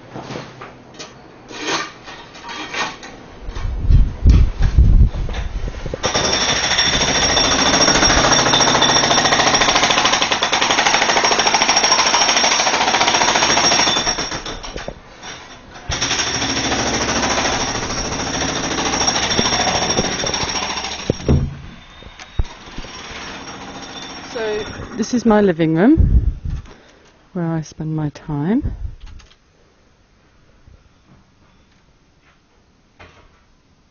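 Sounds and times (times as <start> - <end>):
jackhammer hammering: 6.0 - 21.7, 22.4 - 25.3.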